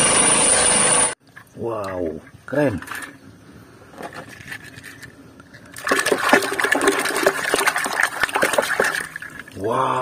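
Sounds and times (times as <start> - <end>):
water splashing and sloshing: 1.2 - 3.2, 4.1 - 9.8.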